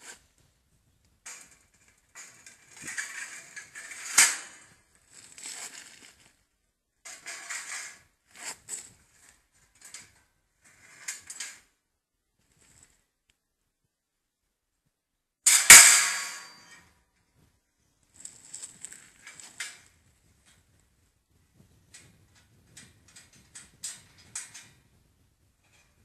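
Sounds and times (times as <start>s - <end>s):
metal clinking and scraping: 1.3s - 6.4s, 7.1s - 11.6s, 15.5s - 16.9s, 18.2s - 20.6s
metal cage rattling and clanking: 2.2s - 4.8s, 15.5s - 16.8s
sharp metal clack: 15.5s - 16.8s.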